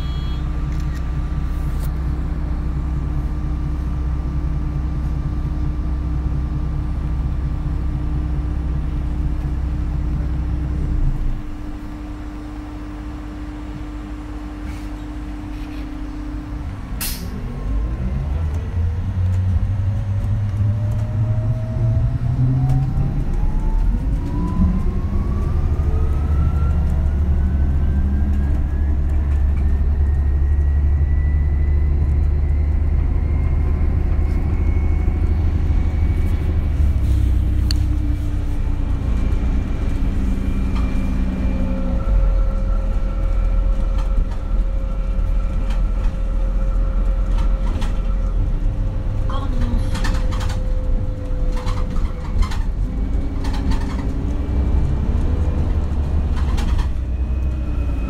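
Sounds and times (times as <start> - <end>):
steady higher hum: 0.0 - 17.0
diesel engine rumble: 0.0 - 58.0
electric bus drive whine: 0.0 - 58.0.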